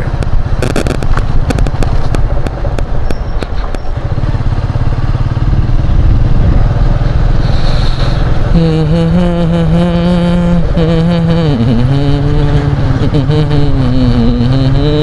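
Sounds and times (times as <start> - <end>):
steady pitched tone: 0.0 - 4.0, 7.4 - 15.0
clatters from bumps: 0.0 - 4.2
engine and road rumble: 0.0 - 15.0.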